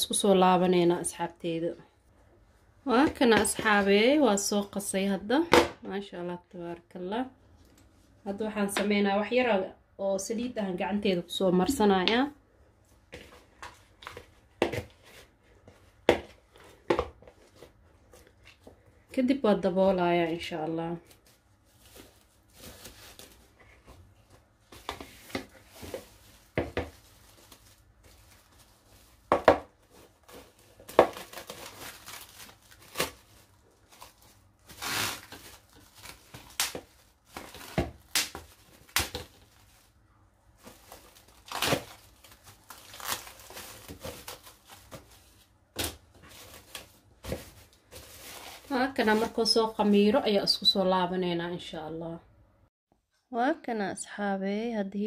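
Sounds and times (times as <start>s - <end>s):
cling film crinkling and ripping: 25.1s - 40.0s, 40.6s - 49.3s.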